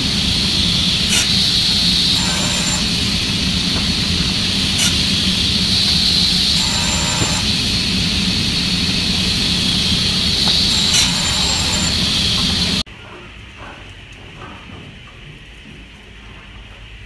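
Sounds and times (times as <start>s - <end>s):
panel saw whining: 0.0s - 12.8s.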